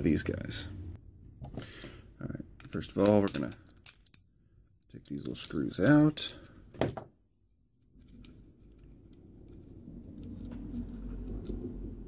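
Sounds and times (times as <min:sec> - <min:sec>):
low rumble: 0:07.9 - 0:12.0.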